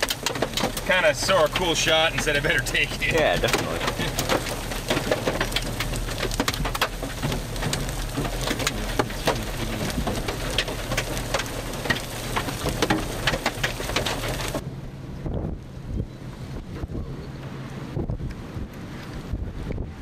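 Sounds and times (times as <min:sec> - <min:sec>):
heavy rain pelting down: 0:00.0 - 0:14.6
raindrops ticking close by: 0:00.0 - 0:14.6.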